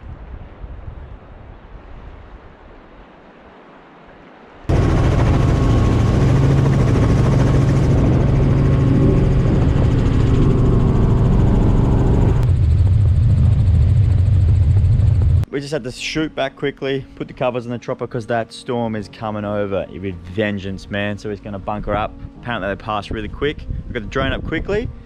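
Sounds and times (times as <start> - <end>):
wind on microphone: 0.0 - 3.1, 4.7 - 15.5, 21.8 - 25.0
helicopter engine and rotor drone: 4.7 - 15.4.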